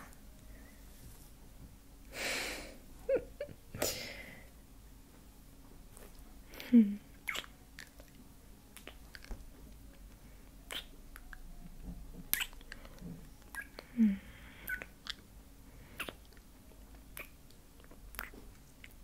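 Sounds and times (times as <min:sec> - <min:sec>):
woman humming: 0:06.5 - 0:07.2, 0:13.8 - 0:14.3
wet lip and tongue clicks: 0:07.2 - 0:08.2, 0:08.8 - 0:09.4, 0:10.7 - 0:11.4, 0:12.3 - 0:13.9, 0:14.7 - 0:15.2, 0:16.0 - 0:16.5, 0:17.1 - 0:19.0.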